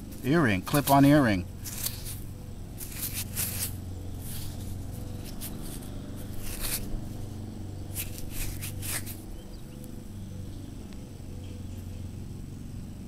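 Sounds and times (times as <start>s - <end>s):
fingers scraping soil off earring: 0.0s - 9.8s
low steady hum: 0.0s - 13.0s.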